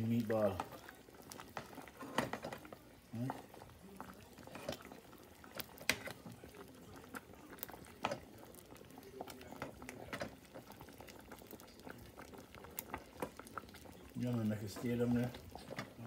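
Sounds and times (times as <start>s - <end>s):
gravy bubbling and popping: 0.0s - 16.0s.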